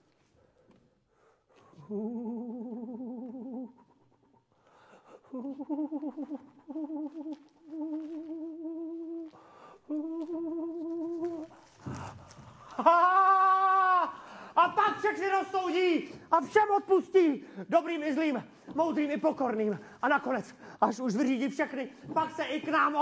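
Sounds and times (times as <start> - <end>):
man humming: 1.8 - 4.0, 5.2 - 12.0.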